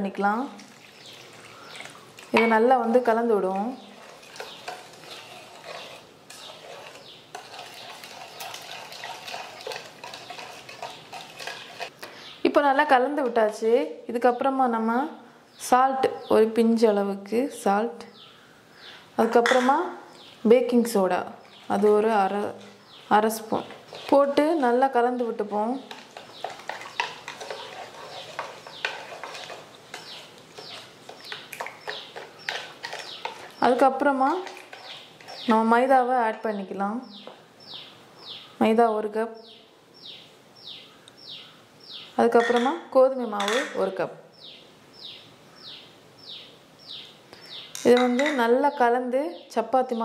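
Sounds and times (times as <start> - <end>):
birds chirping: 0.8 - 13.4, 18.0 - 50.0
spoon scraping in bowl: 3.8 - 12.0, 23.4 - 35.6, 42.3 - 42.8.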